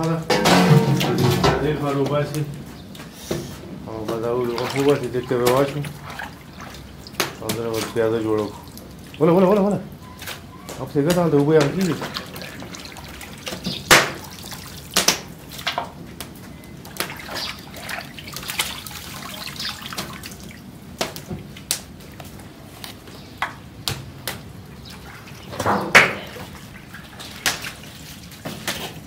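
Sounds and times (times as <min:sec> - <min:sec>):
knock on metal pot: 0:00.3 - 0:01.7
meat splashing in pot of water: 0:04.1 - 0:09.6, 0:10.2 - 0:15.9, 0:16.8 - 0:22.1.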